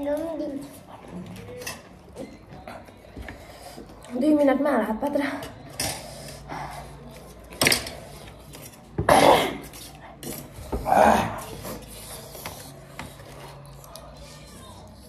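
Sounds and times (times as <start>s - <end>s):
utensils clinking against bowl: 1.2s - 2.6s, 5.2s - 14.2s.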